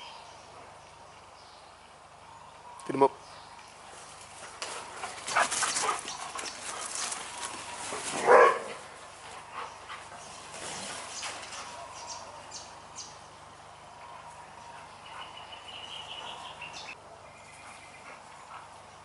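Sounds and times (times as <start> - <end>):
dogs scuffling: 3.9 - 11.8
dog barking: 8.2 - 8.8.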